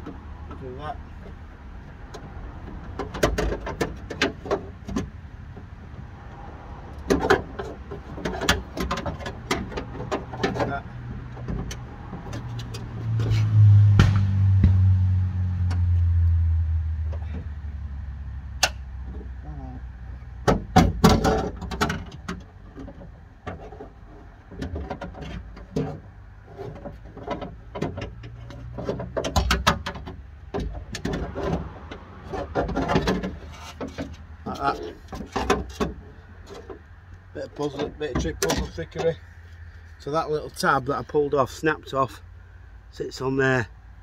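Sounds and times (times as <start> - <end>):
metal clanks and rattles: 0.0 - 6.0, 6.9 - 14.2, 20.4 - 39.3
low rumble: 11.8 - 18.6.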